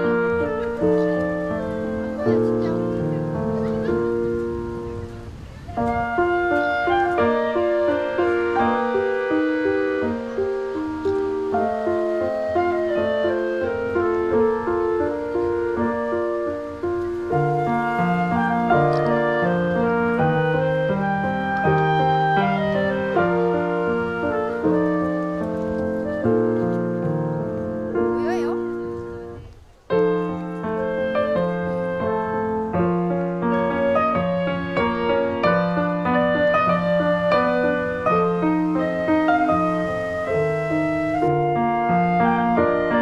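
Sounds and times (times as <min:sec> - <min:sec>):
gentle keyboard music: 0:00.0 - 0:43.0.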